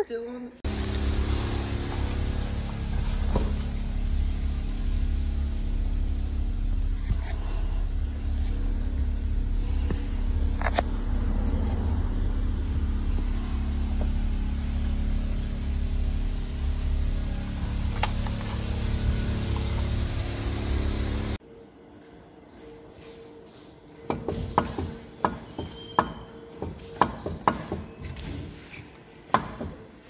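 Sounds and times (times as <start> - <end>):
car engine rumbling in cabin: 0.6 - 21.4.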